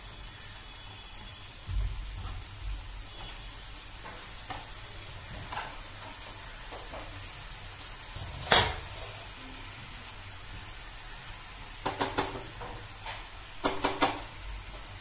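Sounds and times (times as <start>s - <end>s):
faint steady hiss: 0.0s - 15.0s
spatula clacking on pan: 11.8s - 14.3s.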